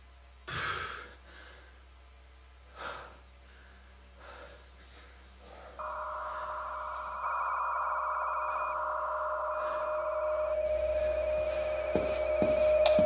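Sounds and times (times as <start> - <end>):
person breathing sharply: 2.7 - 12.4
high electronic tone: 5.8 - 13.0.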